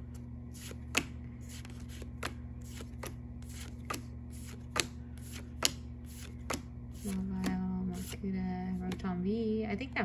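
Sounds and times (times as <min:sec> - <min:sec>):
steady low hum: 0:00.0 - 0:10.0
trading cards flipped: 0:00.6 - 0:08.2.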